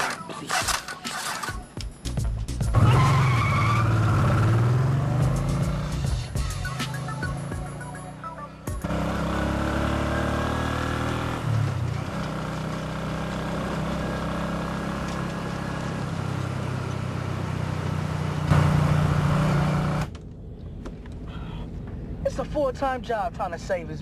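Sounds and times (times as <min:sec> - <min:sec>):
motorbike engine revving: 0:00.0 - 0:01.6, 0:02.7 - 0:06.4, 0:07.0 - 0:20.1.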